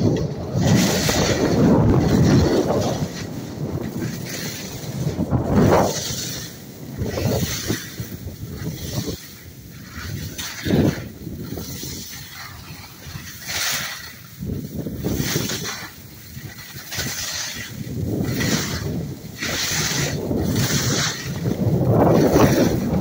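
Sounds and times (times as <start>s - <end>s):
ski edges scraping packed snow: 0.0s - 23.0s
wind buffeting microphone: 0.0s - 23.0s.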